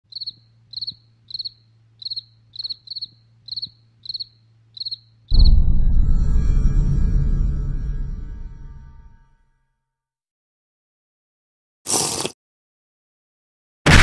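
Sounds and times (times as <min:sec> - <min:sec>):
cricket chirping: 0:00.1 - 0:07.3
deep music sting: 0:05.3 - 0:09.3.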